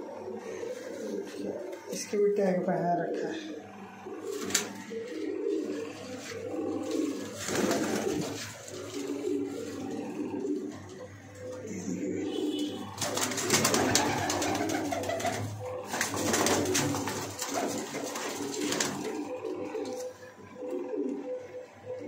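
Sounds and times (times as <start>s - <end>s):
pigeons cooing: 0.0s - 22.0s
wings flapping: 4.1s - 11.6s, 12.3s - 20.2s.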